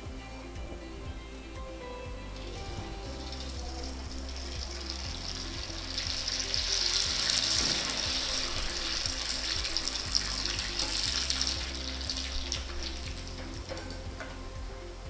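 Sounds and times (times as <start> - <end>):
food sizzling in hot oil: 2.3 - 15.0.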